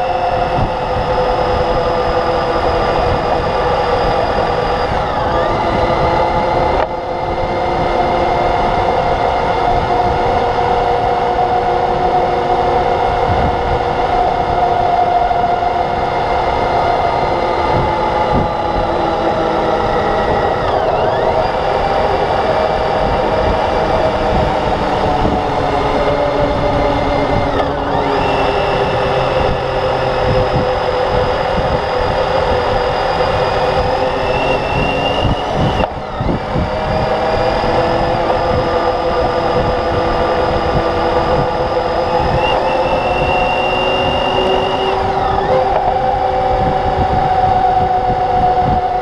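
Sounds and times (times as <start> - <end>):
motorcycle engine running: 0.0 - 49.0
wind noise: 0.0 - 49.0.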